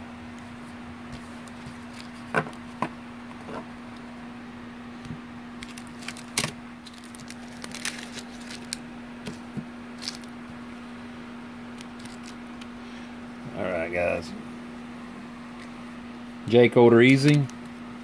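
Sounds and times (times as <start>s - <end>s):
steady low hum: 0.0s - 18.0s
cards being flipped through: 1.1s - 3.7s, 5.6s - 10.4s, 11.7s - 12.7s.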